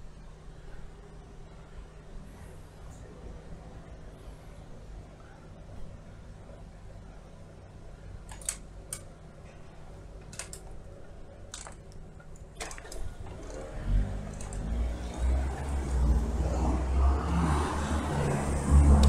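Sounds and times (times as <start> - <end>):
engine running low: 12.9 - 19.0
car accelerating: 13.3 - 19.0.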